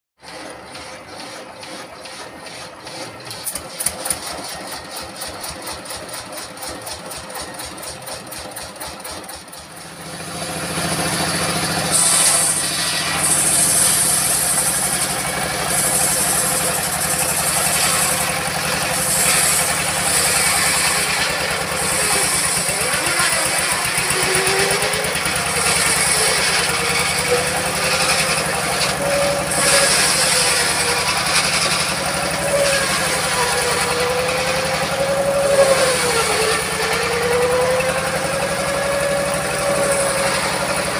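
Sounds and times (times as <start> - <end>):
diesel engine chugging: 0.2 - 40.9
circular saw ripping log: 10.2 - 40.9.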